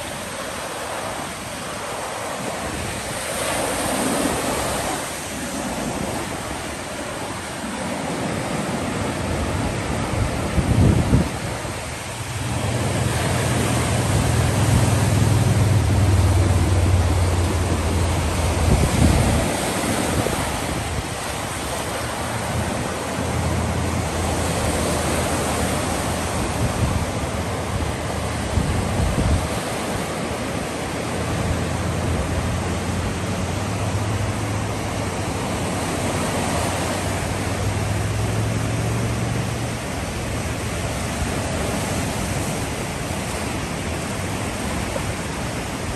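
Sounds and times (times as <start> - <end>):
waves breaking on pebbles: 0.0 - 45.9
wind rumbling on microphone: 0.0 - 45.9.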